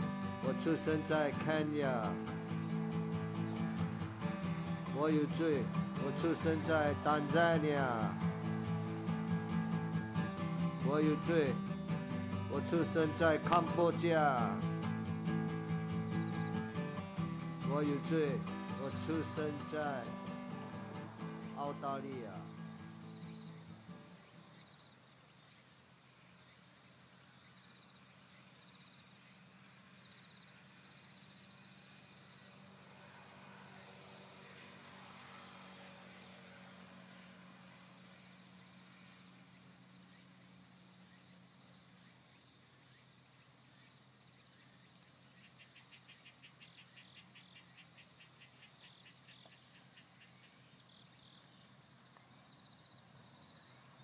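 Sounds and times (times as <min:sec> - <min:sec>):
insect pulsing high trill: 0:00.0 - 0:24.3
faster insect trill: 0:00.0 - 0:25.0, 0:29.2 - 0:41.4.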